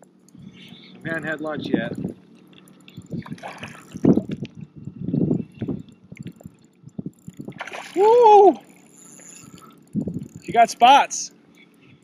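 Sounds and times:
water sloshing and splashing: 2.1s - 9.8s.

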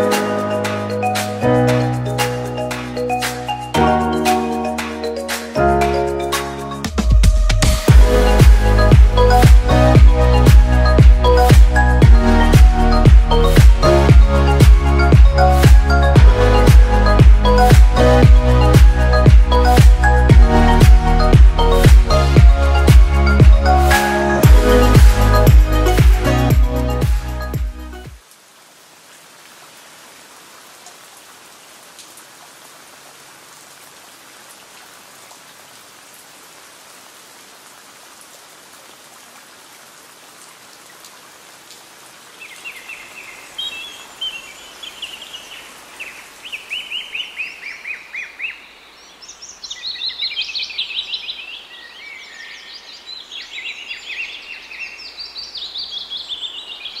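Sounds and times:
small birds chirping: 42.2s - 57.0s.

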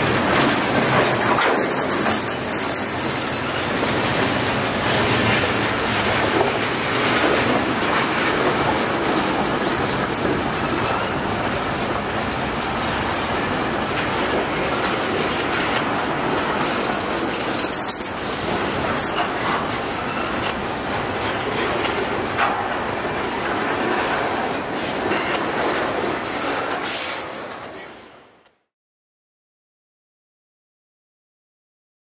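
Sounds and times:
wheels clicking over rail joints: 0.0s - 28.2s
steel wheels rumbling on rail: 0.0s - 28.4s.

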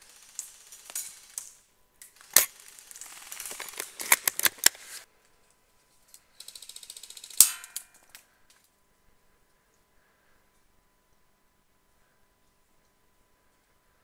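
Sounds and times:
rifle bolt clicks and clacks: 3.4s - 4.8s.

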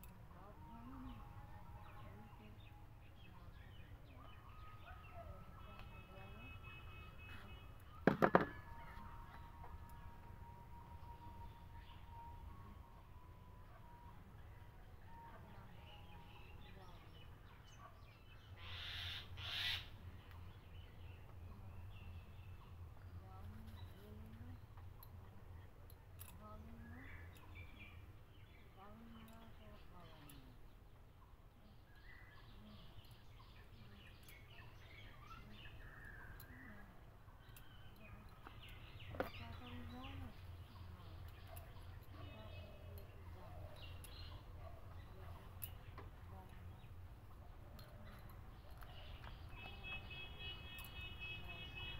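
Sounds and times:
low steady background rumble: 0.0s - 49.8s
small birds chirping: 15.0s - 51.9s.

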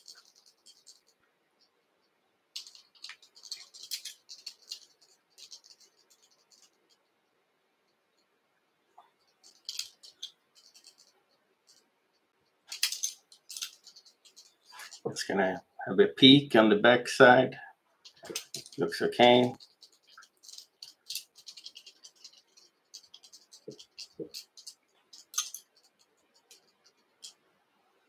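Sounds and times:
tinsel rustling: 0.0s - 1.1s, 2.6s - 7.0s, 12.7s - 15.3s, 18.0s - 27.4s.

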